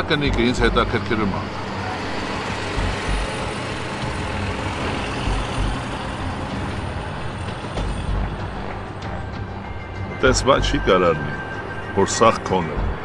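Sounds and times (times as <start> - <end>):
road noise hiss: 0.0 - 10.2
large motor vehicle rumbling: 0.0 - 13.0.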